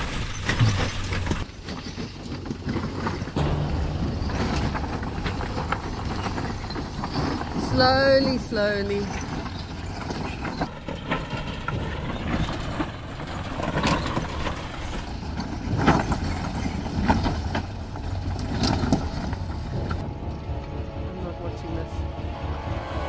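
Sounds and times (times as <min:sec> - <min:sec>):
engine running at low revs: 0:03.4 - 0:07.6.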